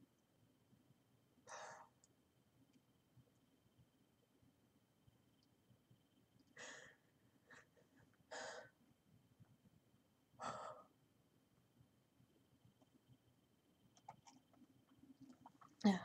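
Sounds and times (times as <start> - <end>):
woman breathing: 6.5 - 8.8, 10.4 - 10.9.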